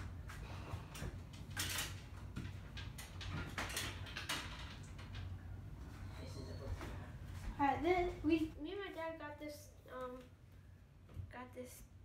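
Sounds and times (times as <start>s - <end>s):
objects rustling and clattering: 0.0s - 8.5s.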